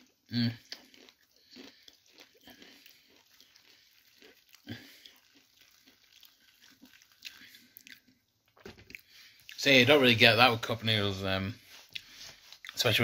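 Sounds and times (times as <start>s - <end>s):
water trickling onto noodles: 2.8s - 8.5s.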